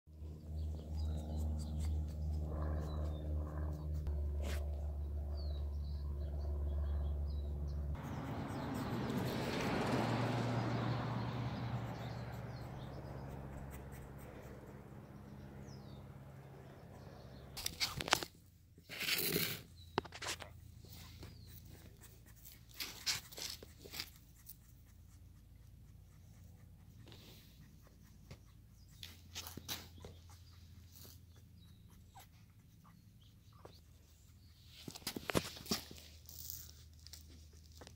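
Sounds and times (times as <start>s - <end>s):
low mechanical hum: 0.2s - 26.9s
puppy claws scratching on concrete: 17.6s - 33.0s, 33.6s - 37.9s.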